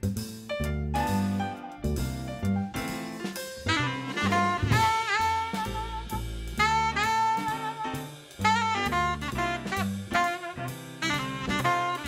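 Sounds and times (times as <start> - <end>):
drum kit: 0.0 - 12.0
upright bass: 0.0 - 12.0
alto saxophone playing quick notes: 3.2 - 12.0.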